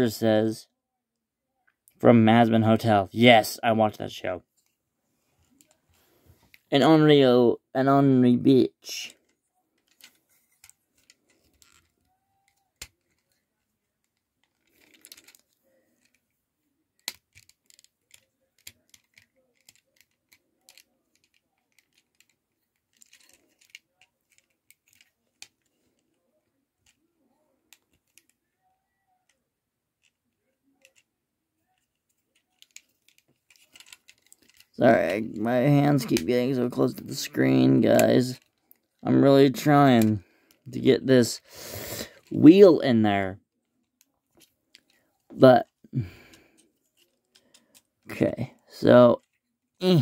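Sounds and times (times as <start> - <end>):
plastic toy parts clicking: 9.1 - 16.3, 16.9 - 26.1, 27.7 - 28.4, 30.0 - 31.1, 31.7 - 35.2, 38.0 - 39.1, 43.7 - 45.0, 46.3 - 48.2.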